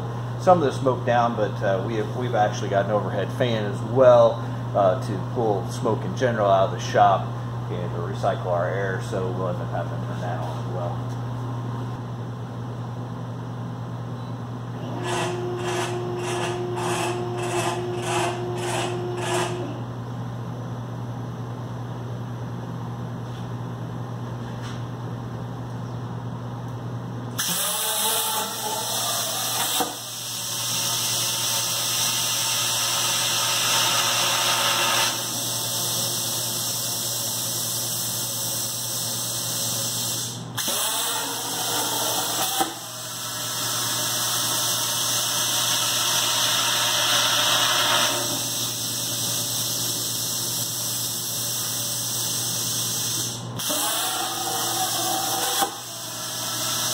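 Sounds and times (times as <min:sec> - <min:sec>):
steady hum: 0:00.0 - 0:27.4
plasma torch hissing: 0:36.6 - 0:43.8, 0:44.6 - 0:56.9.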